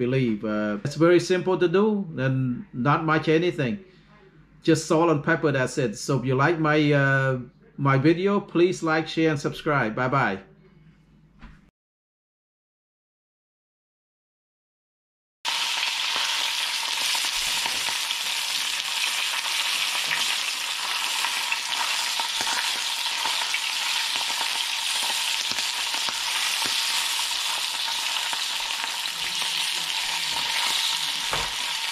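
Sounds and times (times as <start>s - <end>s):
fish sizzling in oil: 15.5s - 31.9s.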